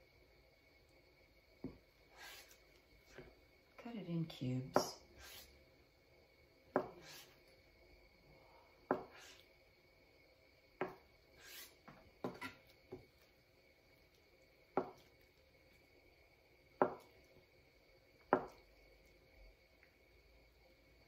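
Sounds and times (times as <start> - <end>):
knife tapping plastic cutting board: 16.8 - 17.1, 18.3 - 18.6.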